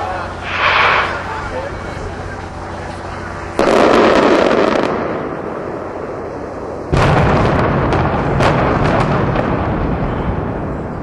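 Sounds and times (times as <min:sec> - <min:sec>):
building demolition blast: 0:00.0 - 0:11.0
low rolling rumble: 0:00.0 - 0:11.0
sharp cracks: 0:00.4 - 0:01.8.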